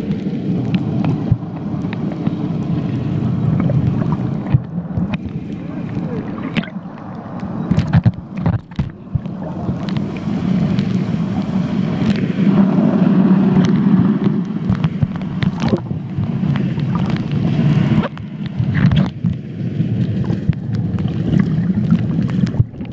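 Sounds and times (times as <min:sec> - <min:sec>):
underwater rumble of moving water: 0:00.0 - 0:22.9
sharp clicks and knocks: 0:04.4 - 0:10.1, 0:13.6 - 0:17.4, 0:18.0 - 0:19.4.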